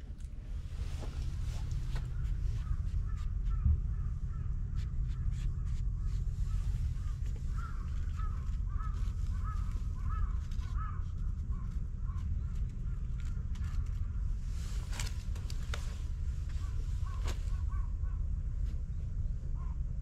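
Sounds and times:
steady low rumble: 0.0 - 20.0
crow cawing: 2.0 - 14.2.

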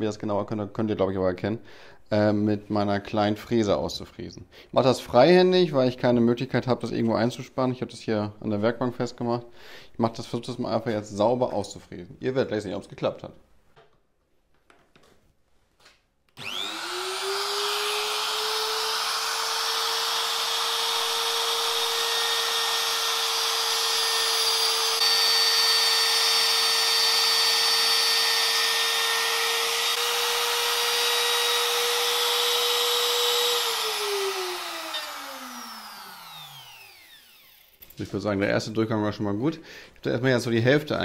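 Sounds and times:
router bit cutting wood hiss: 16.4 - 37.8
router motor whining: 16.4 - 37.8.

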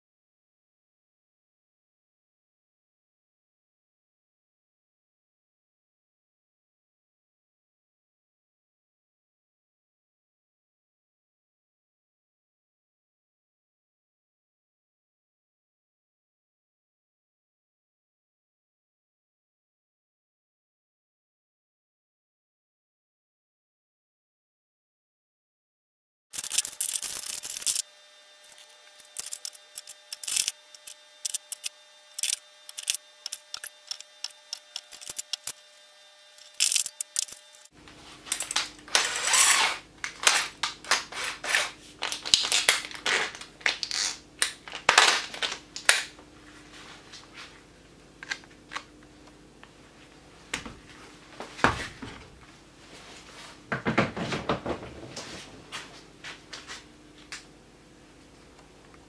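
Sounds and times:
tools clicking and rattling on workbench: 26.4 - 27.8, 29.0 - 35.5, 36.4 - 37.7.

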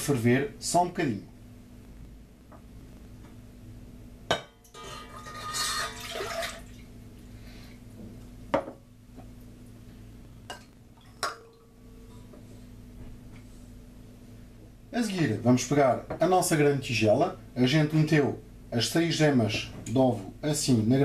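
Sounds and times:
steady low hum: 0.0 - 21.0
milk poured into saucepan: 4.8 - 6.9
glassware knocking on pan: 8.5 - 8.8.

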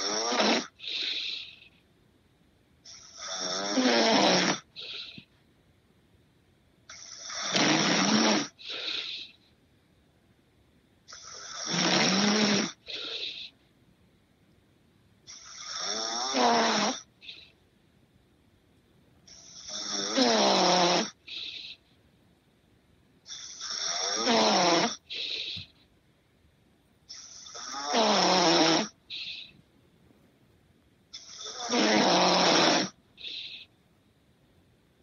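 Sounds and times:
man snoring: 0.0 - 1.7, 2.9 - 5.2, 6.9 - 9.4, 11.1 - 13.5, 15.3 - 17.4, 19.3 - 21.8, 23.3 - 25.7, 27.1 - 29.5, 31.2 - 33.7.

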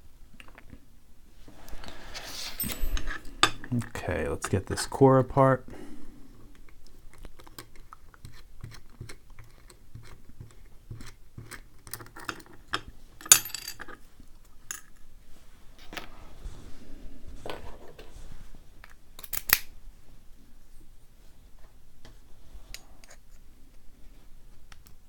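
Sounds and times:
small metal clicks and scrapes: 6.6 - 14.0.

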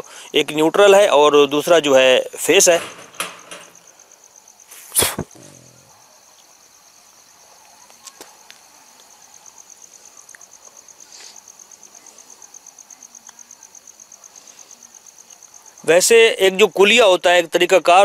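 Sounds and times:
insect trilling: 3.4 - 8.2
sharp knock: 4.9 - 5.6.

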